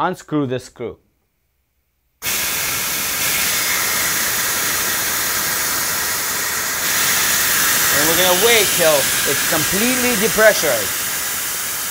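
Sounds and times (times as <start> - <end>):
high-pressure air hissing: 2.2 - 11.9.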